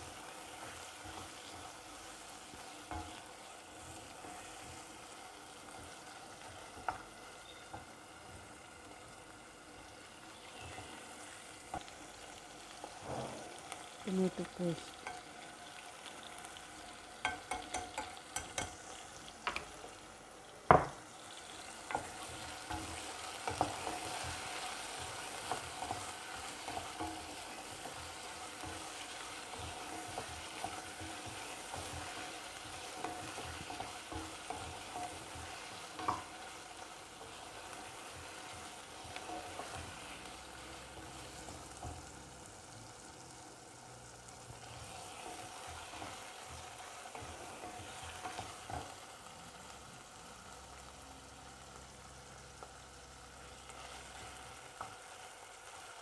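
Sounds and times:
chicken sizzling in oil: 0:00.0 - 0:56.0
wooden spatula tapping: 0:17.2 - 0:18.8, 0:21.8 - 0:36.6.

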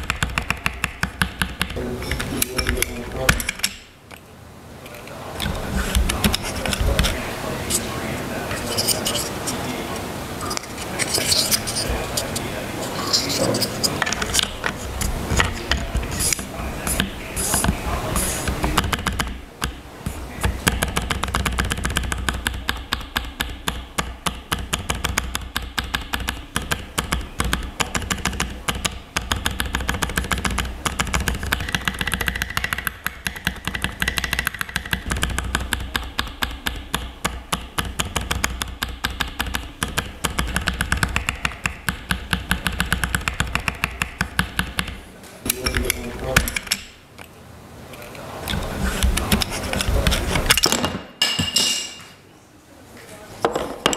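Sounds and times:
keyboard keys clacking: 0:00.0 - 0:03.8, 0:04.9 - 0:19.8.

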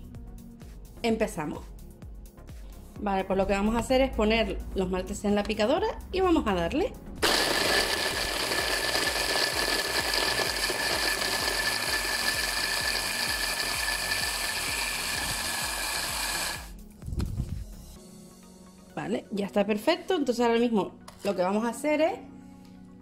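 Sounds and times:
hand blender motor whine: 0:07.2 - 0:16.8.

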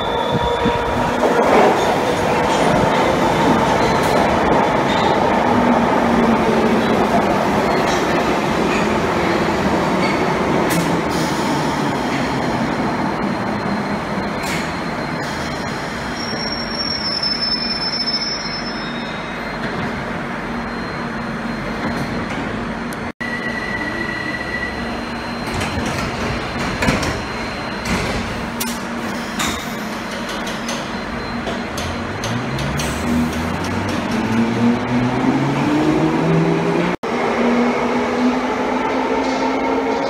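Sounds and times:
train doors shutting: 0:00.0 - 0:16.8, 0:24.4 - 0:36.9
train braking to a stop: 0:06.6 - 0:22.4, 0:23.2 - 0:36.6.

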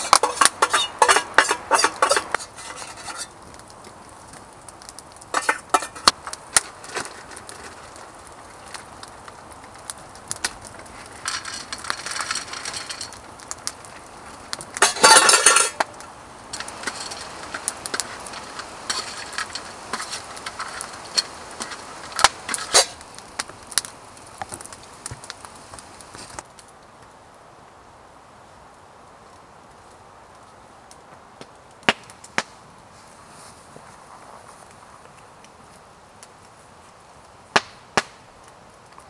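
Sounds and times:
kibble rattling onto metal plate: 0:00.0 - 0:03.3, 0:05.3 - 0:07.7, 0:11.2 - 0:13.2, 0:14.8 - 0:23.0
metal spoon scraping steel plate: 0:00.0 - 0:03.3.

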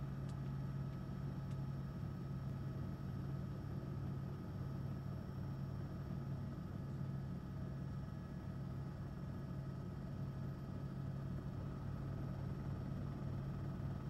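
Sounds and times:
helicopter drone from on board: 0:00.0 - 0:14.0.

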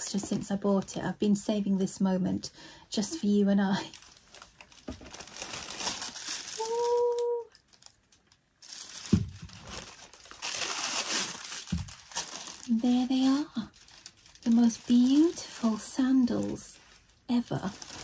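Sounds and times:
tissue paper rustling: 0:03.2 - 0:07.9, 0:08.6 - 0:18.0.

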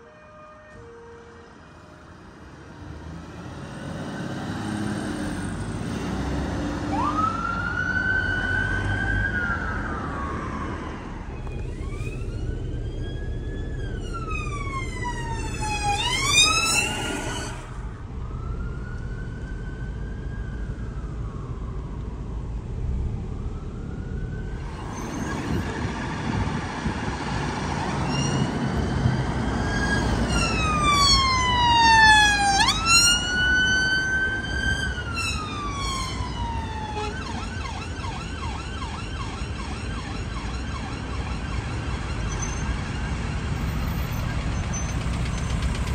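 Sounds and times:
road traffic noise: 0:00.0 - 0:45.9
siren wailing and yelping: 0:06.9 - 0:17.8, 0:29.3 - 0:43.0.

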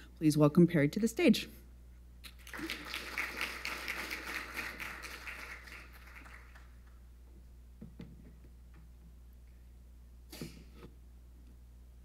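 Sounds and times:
audience applauding: 0:02.3 - 0:07.0.

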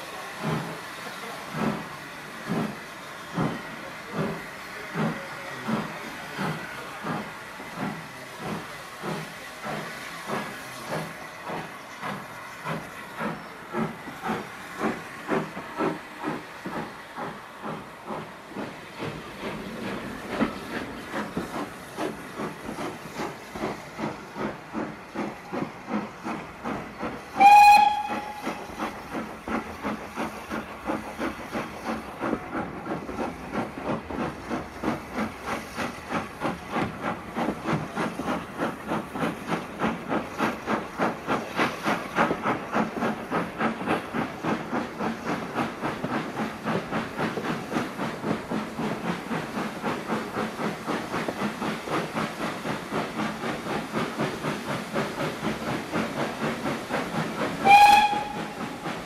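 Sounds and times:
steam locomotive chuffing: 0:00.0 - 0:59.0
steam whistle blast: 0:27.4 - 0:28.6, 0:57.6 - 0:58.6.

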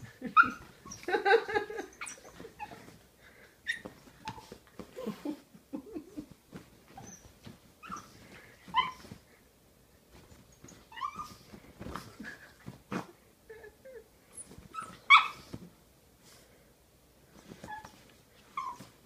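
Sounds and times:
blankets rustling: 0:00.0 - 0:13.4
puppy whimpering: 0:00.3 - 0:01.1, 0:01.8 - 0:02.9, 0:07.0 - 0:09.2, 0:10.9 - 0:11.4, 0:18.6 - 0:19.0.

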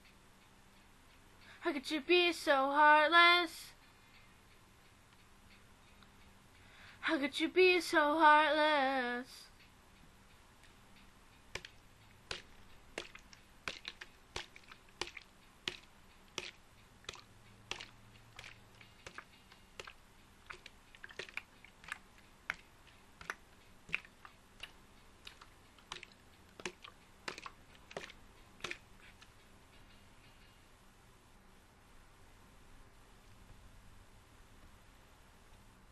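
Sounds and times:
faint low hum: 0:00.0 - 0:35.9
computer keyboard clicking: 0:23.2 - 0:28.8.

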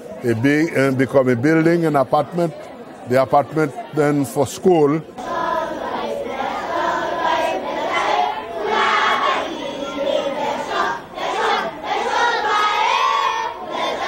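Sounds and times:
crowd of children shouting: 0:05.2 - 0:14.0.

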